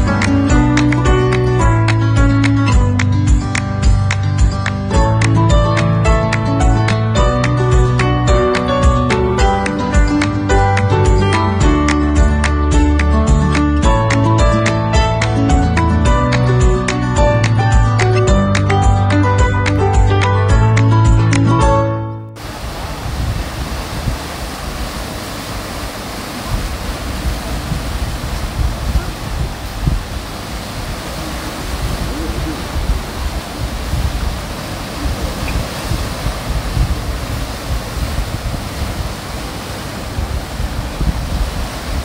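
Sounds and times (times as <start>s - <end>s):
surf washing over rocks: 0.0s - 20.6s, 22.4s - 42.0s
wind gusting on microphone: 22.4s - 42.0s.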